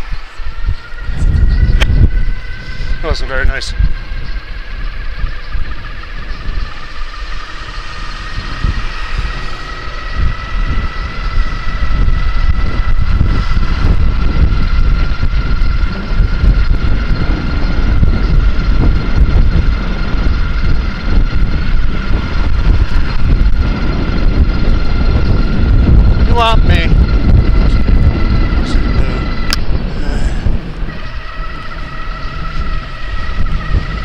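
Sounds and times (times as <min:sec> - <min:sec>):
electric motor whining: 0:00.0 - 0:34.0
wind buffeting microphone: 0:00.0 - 0:34.0.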